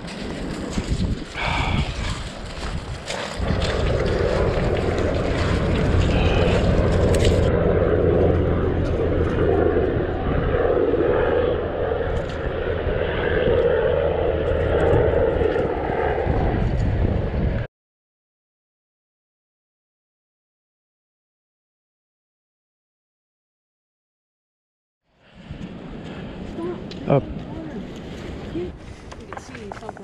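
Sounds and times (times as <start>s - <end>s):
propeller aircraft flying over: 0.0s - 17.7s.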